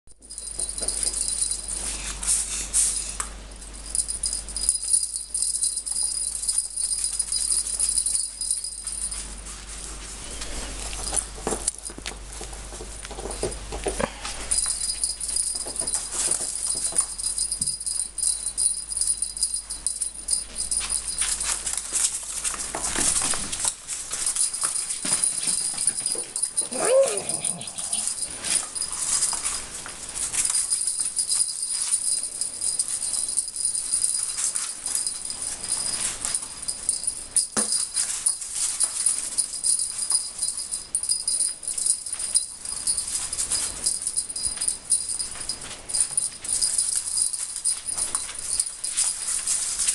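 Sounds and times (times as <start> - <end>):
toy clicks and rattles: 3.6 - 9.2
wavering animal sound: 26.6 - 28.2.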